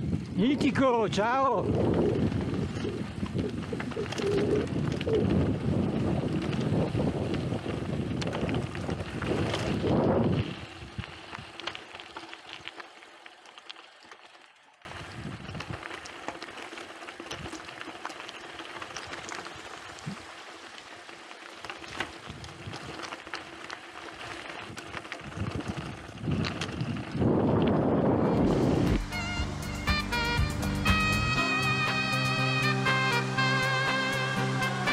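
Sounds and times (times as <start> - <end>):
wind rumble on microphone: 0.0 - 11.7, 14.9 - 16.0, 22.0 - 23.1, 24.6 - 29.2
tyres crunching over gravel: 0.3 - 29.2
bike clicks and rattles: 1.4 - 29.1.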